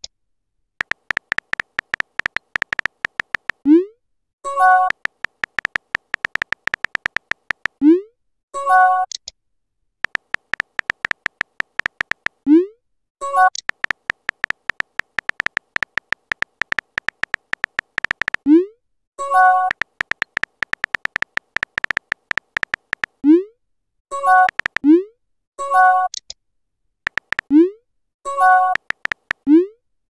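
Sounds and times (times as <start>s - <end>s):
keyboard tap clicks: 0.8s - 3.6s, 4.8s - 7.8s, 10.0s - 12.4s, 13.6s - 18.4s, 19.6s - 23.2s, 24.4s - 24.8s, 27.1s - 27.5s, 28.7s - 29.4s.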